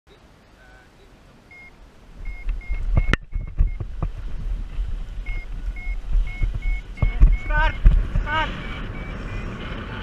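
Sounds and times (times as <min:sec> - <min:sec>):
variometer high beeps: 0:01.5 - 0:03.9, 0:05.2 - 0:09.6
wind buffeting microphone: 0:01.8 - 0:10.0.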